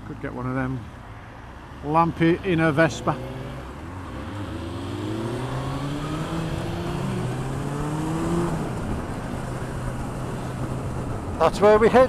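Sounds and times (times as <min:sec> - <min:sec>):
motorcycle engine accelerating: 0:02.5 - 0:11.3.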